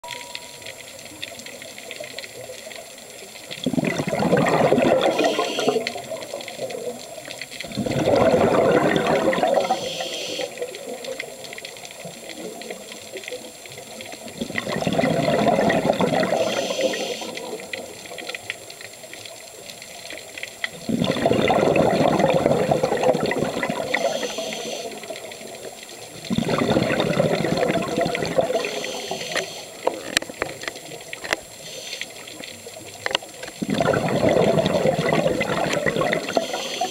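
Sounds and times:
bubbling bursts of exhaled air: 0:03.5 - 0:11.5, 0:14.2 - 0:18.2, 0:20.7 - 0:32.8, 0:33.4 - 0:36.9
regulator hiss: 0:05.0 - 0:06.4, 0:09.5 - 0:11.0, 0:16.2 - 0:18.0, 0:23.8 - 0:26.2, 0:28.5 - 0:30.3, 0:31.5 - 0:32.8, 0:36.1 - 0:36.9.

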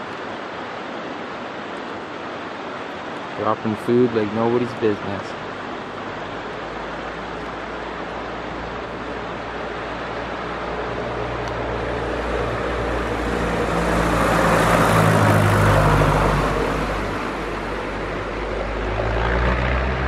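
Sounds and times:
propeller plane engine drone: 0:04.8 - 0:20.0.

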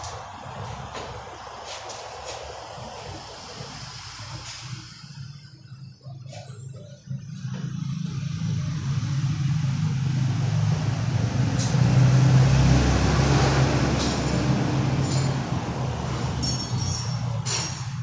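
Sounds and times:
vehicle engine passing by: 0:07.1 - 0:18.0.

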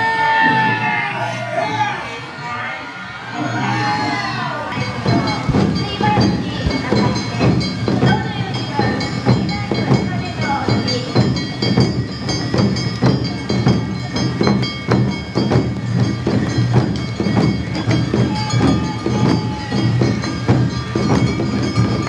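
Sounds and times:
ringing bells: 0:03.0 - 0:22.0
drums in two-beat rhythm: 0:04.7 - 0:22.0
flutes: 0:17.7 - 0:22.0.

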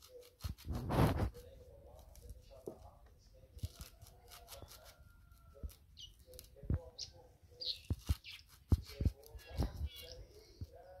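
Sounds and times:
knife slicing leaves: 0:03.6 - 0:05.0, 0:07.8 - 0:09.4.

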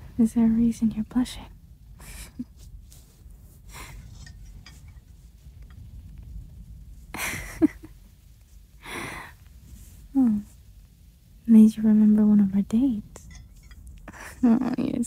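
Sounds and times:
microphone rumble: 0:00.0 - 0:13.3
woman breathing softly: 0:08.8 - 0:09.8.

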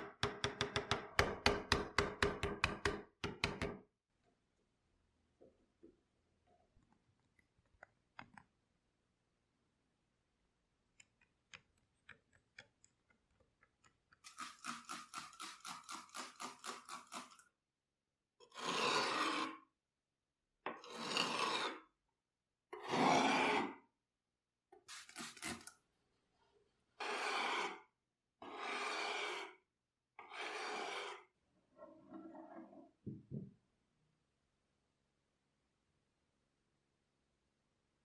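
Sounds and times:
blade scraping on whetstone: 0:18.5 - 0:19.6, 0:20.8 - 0:21.8, 0:22.8 - 0:23.8, 0:27.0 - 0:27.8, 0:28.4 - 0:29.5, 0:30.2 - 0:31.3.

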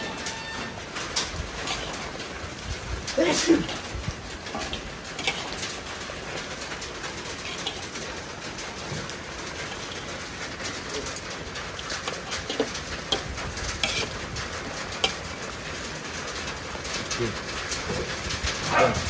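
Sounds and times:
metal spatula scraping a wok: 0:00.0 - 0:02.7, 0:03.6 - 0:15.6.

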